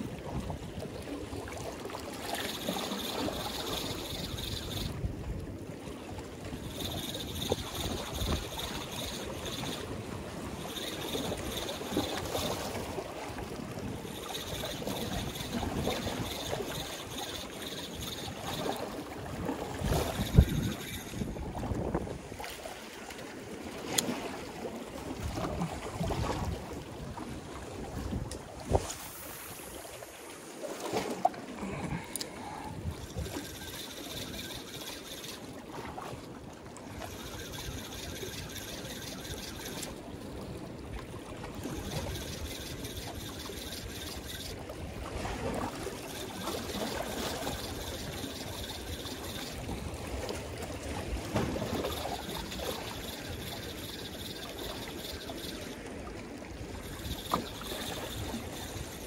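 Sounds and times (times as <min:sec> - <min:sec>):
wind buffeting microphone: 0:19.2 - 0:22.4.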